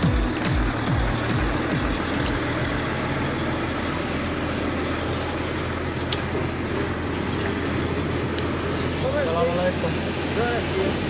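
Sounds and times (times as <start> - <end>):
truck engine and road rumble: 0.0 - 11.0.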